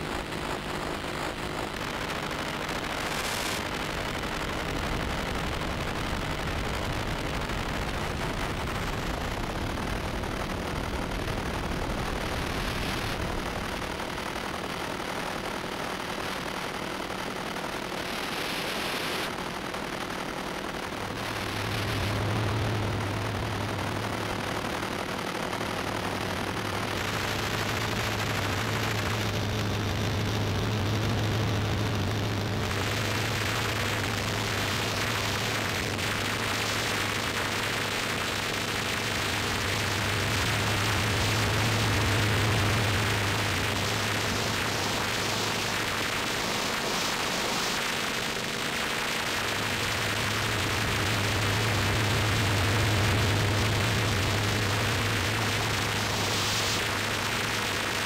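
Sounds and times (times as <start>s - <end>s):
static hiss: 0.0s - 58.0s
low droning hum: 18.1s - 58.0s.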